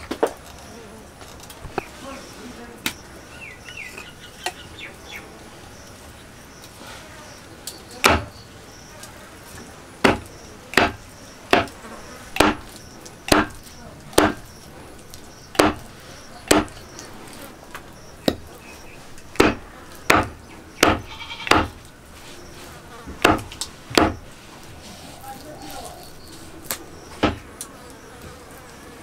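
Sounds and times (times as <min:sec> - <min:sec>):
knife chopping fish on wooden block: 0:08.0 - 0:08.3, 0:10.0 - 0:11.8, 0:12.4 - 0:12.7, 0:13.3 - 0:13.6, 0:14.2 - 0:14.5, 0:15.6 - 0:16.8, 0:19.3 - 0:21.8, 0:23.2 - 0:24.2, 0:27.2 - 0:27.4.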